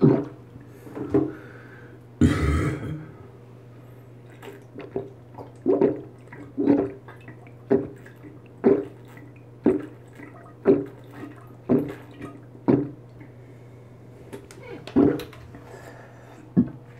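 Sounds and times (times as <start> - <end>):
person gulping loudly: 2.2 - 3.2, 4.2 - 13.2.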